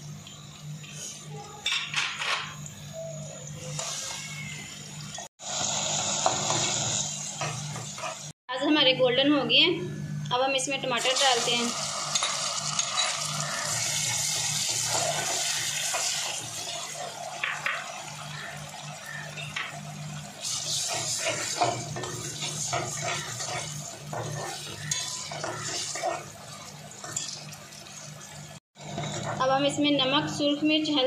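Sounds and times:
food sizzling in hot oil: 3.6 - 8.4, 11.0 - 29.3
metal spoon scraping pan: 20.4 - 26.3.

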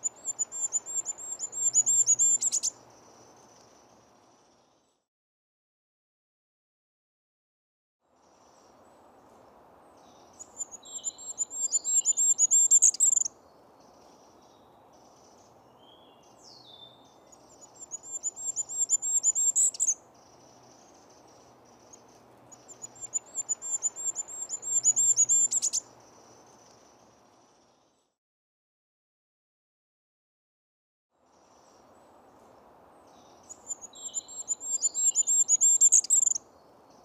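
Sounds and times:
small bird singing high thin notes: 0.0 - 2.8, 10.4 - 13.3, 17.7 - 20.0, 22.6 - 25.9, 33.4 - 36.4
faint steady hiss: 0.0 - 5.1, 8.0 - 28.2, 31.2 - 37.0.

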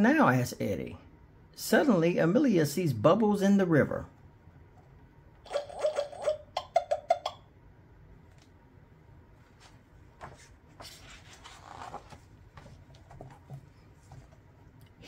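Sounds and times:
page turning paper rustle: 9.6 - 14.4.

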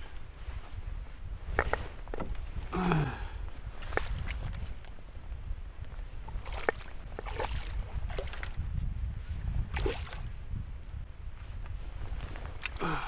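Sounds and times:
wind rumble on microphone: 0.0 - 13.0
water splashes: 6.3 - 8.6, 9.7 - 10.3.

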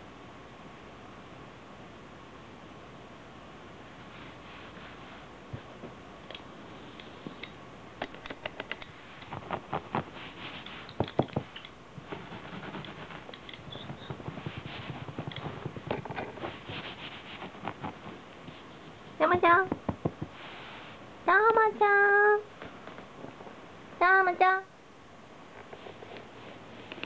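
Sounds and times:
light clicks and taps: 12.8 - 14.2.

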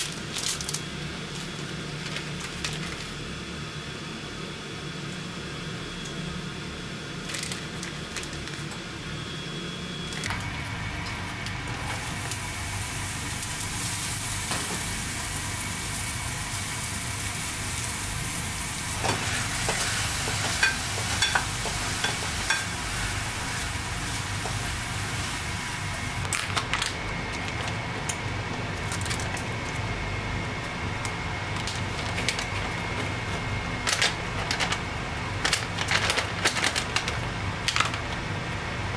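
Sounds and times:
mushrooms sizzling in a frying pan: 11.8 - 26.3.

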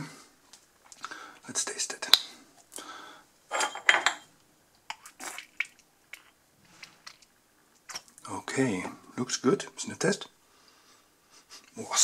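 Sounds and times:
thick sauce pouring: 4.9 - 8.2.

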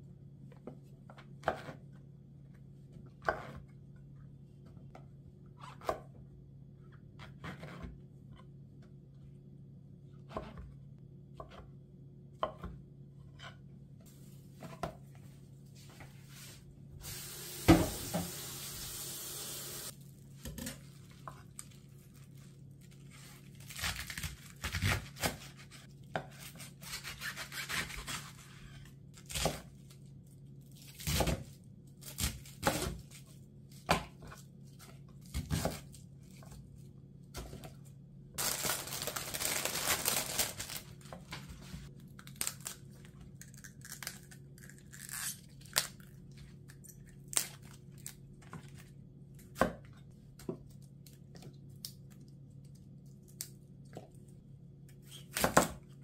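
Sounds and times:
plastic bag crinkling: 38.4 - 41.1.

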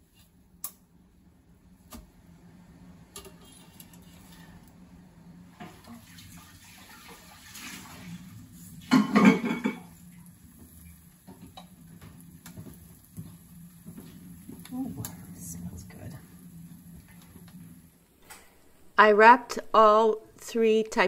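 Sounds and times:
liquid bubbling and hissing: 3.3 - 18.2
kitchen tap running: 5.5 - 17.9.

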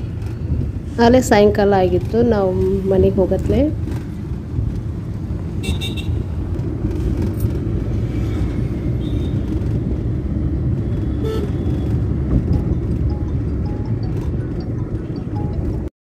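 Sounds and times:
car engine and road rumble: 0.0 - 15.9
vehicle horn toot: 5.6 - 6.2, 11.1 - 11.9.

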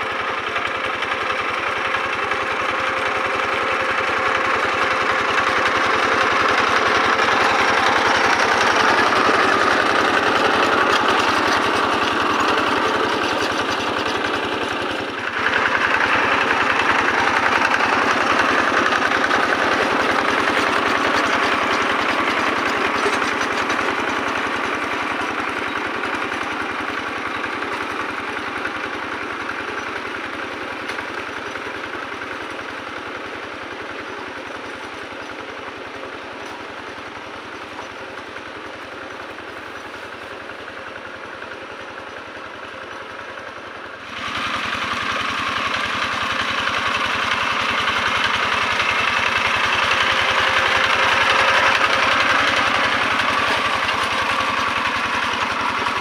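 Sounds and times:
diesel tractor engine running: 0.0 - 56.0.

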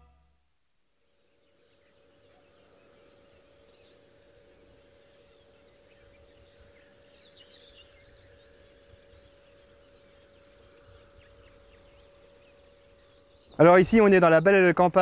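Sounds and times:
distant bird chirps: 0.0 - 15.0
faint steady hum: 0.0 - 15.0.

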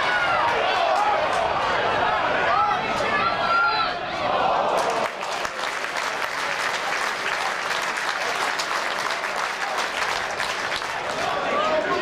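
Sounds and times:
crowd clapping: 4.6 - 12.0.

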